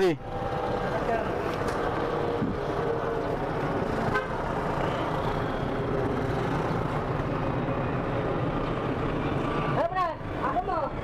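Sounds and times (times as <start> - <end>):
road traffic: 0.0 - 11.0
vehicle horn tooting: 4.1 - 5.0.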